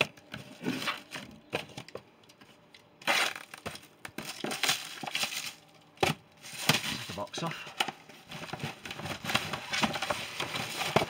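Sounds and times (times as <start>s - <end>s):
packaging crinkling: 3.0s - 7.5s, 8.1s - 11.0s.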